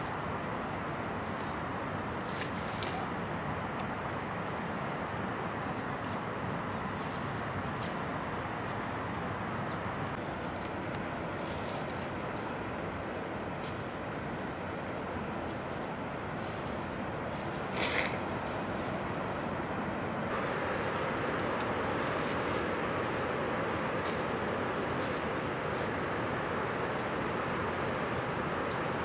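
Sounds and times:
leafy plants rustling: 0.0s - 29.0s
steady outdoor hiss: 0.0s - 29.0s
stems snapping: 20.3s - 26.0s.

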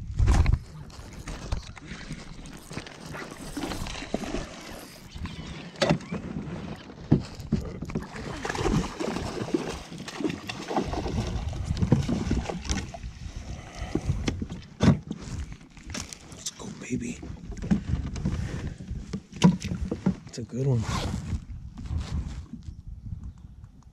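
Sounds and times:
fish splashing and thrashing: 0.2s - 16.4s
water sloshing: 0.8s - 16.8s.

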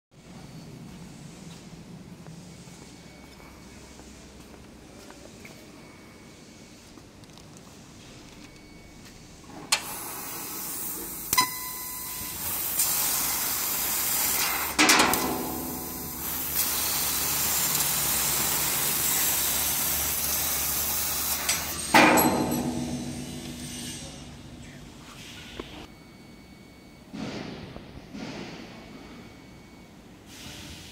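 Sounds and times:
gas hissing through nozzle: 12.4s - 14.7s, 15.7s - 21.7s
sharp bangs: 21.4s - 25.0s.

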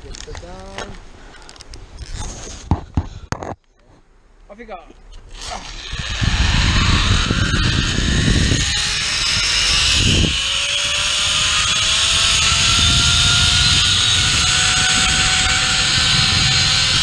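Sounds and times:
wind rushing on microphone: 5.3s - 17.0s
zipline pulley whining on cable: 5.3s - 17.0s.

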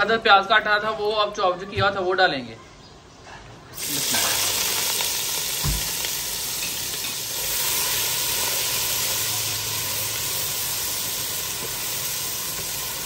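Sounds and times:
onion sizzling in hot oil: 3.8s - 13.0s
dull knock: 5.6s - 5.9s.

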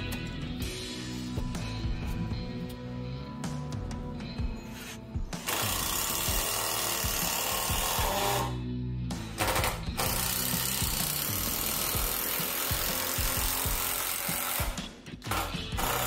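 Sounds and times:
background music: 0.0s - 16.0s
cordless drill into wood: 5.4s - 8.6s.

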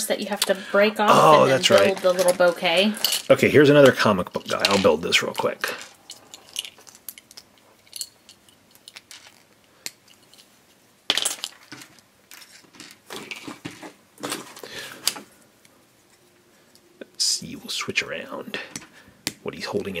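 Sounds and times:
plastic parts clicking and clattering: 1.6s - 10.5s, 11.1s - 15.3s.

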